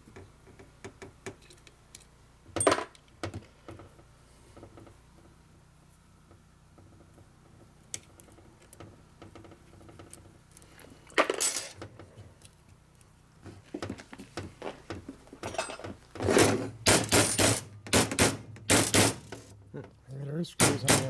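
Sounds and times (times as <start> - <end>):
metal tools clinking on workbench: 11.2 - 11.8, 15.4 - 17.6.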